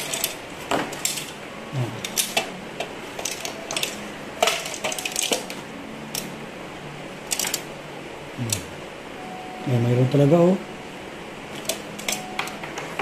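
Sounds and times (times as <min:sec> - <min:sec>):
metallic clicks and clinks: 0:00.0 - 0:00.4, 0:01.0 - 0:01.4, 0:03.2 - 0:06.3, 0:07.3 - 0:07.6.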